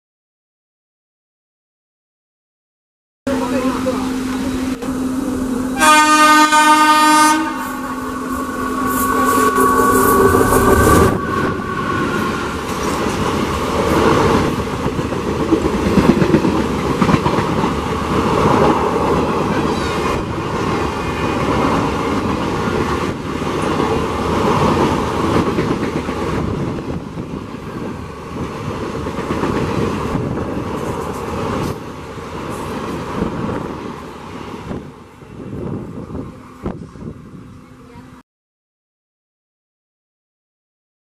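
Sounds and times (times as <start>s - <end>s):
train rushing past: 3.3s - 37.8s
train horn: 5.7s - 12.9s
wheels clacking over rail joints: 12.0s - 33.4s.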